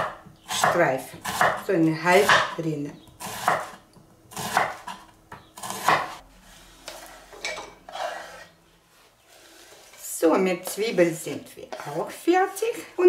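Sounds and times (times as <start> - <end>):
soft scraping: 6.2 - 10.2.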